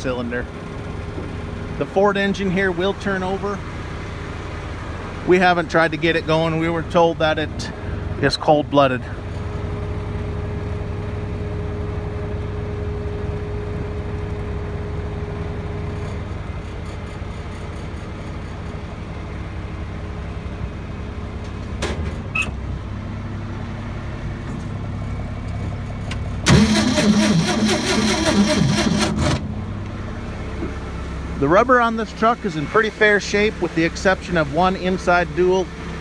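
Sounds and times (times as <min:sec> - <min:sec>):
truck engine idling: 0:00.0 - 0:36.0
engine cranking on starter: 0:26.4 - 0:29.5.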